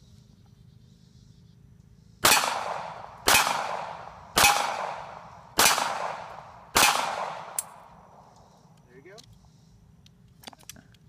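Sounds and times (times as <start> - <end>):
pistol shots: 2.2 - 7.8.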